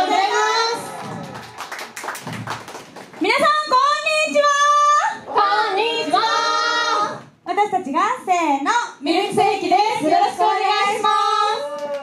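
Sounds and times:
hand claps: 1.2s - 3.2s, 11.8s - 12.0s
girls singing together: 4.8s - 7.4s, 9.0s - 11.7s.

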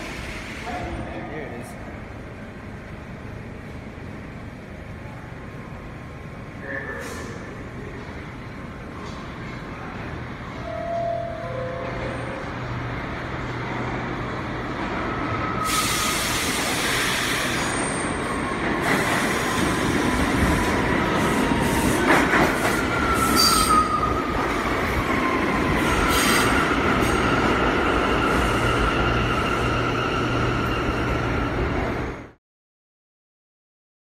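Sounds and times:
low hum of standing train: 0.0s - 32.4s
subway train running over rails: 0.0s - 32.4s
high wheel squeals: 23.0s - 24.3s.

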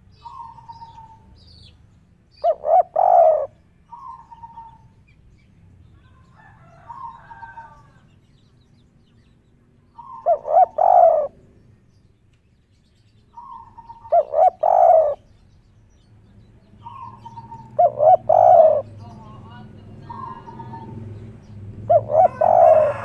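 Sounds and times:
dove cooing: 0.2s - 1.3s, 2.4s - 4.9s, 6.6s - 8.0s, 10.0s - 11.4s, 13.4s - 15.3s, 16.8s - 21.1s, 21.8s - 23.0s.

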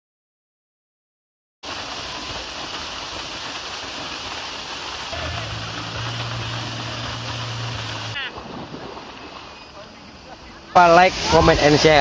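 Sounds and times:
waterfall splashing onto rocks: 1.6s - 8.2s, 10.8s - 12.0s
low steady hum: 5.2s - 8.2s.

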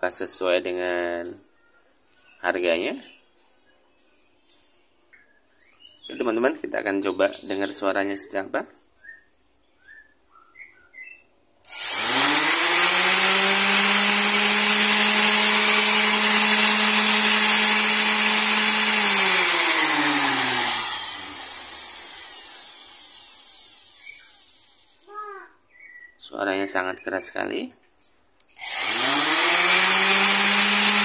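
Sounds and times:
orbital sander whining: 11.7s - 24.9s, 28.6s - 31.0s.

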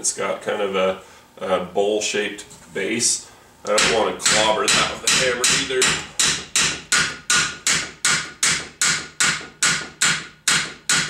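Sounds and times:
hammer blows on metal: 3.8s - 11.0s.

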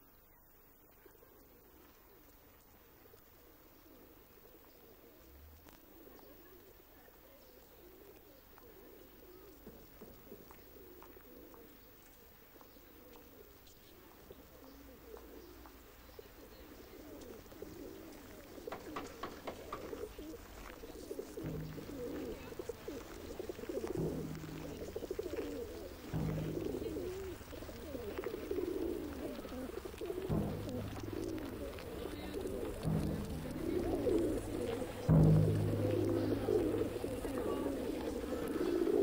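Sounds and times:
pigeon-like cooing: 3.0s - 39.0s
low pulses: 23.8s - 38.6s.

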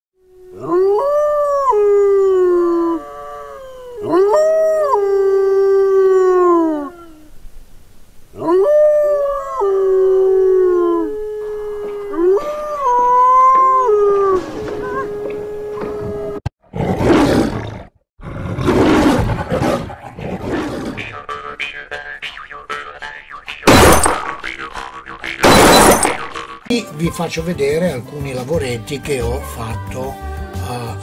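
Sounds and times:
wolf howling: 0.3s - 7.4s, 8.3s - 16.4s.

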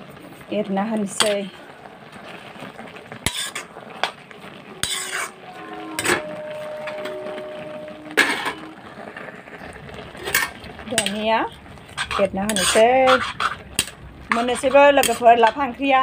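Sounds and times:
metal spatula scraping a wok: 3.2s - 4.2s, 4.8s - 8.8s, 10.1s - 15.7s
steady ringing tone: 4.7s - 9.0s.

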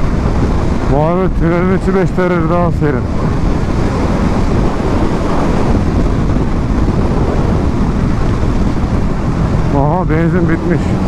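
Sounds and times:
wind rush on microphone: 0.0s - 11.0s
motorcycle engine running: 3.0s - 11.0s.

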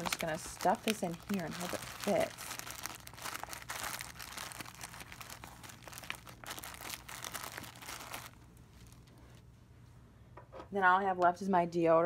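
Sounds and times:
plastic crinkling and rustling: 0.0s - 9.5s.

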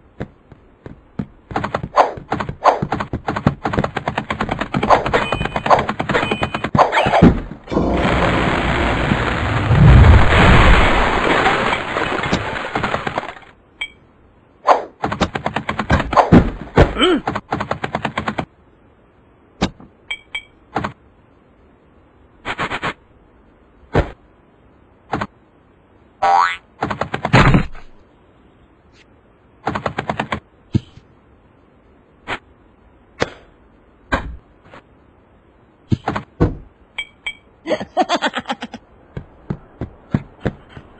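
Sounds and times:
noisy rush with deep rumble: 7.6s - 13.4s.

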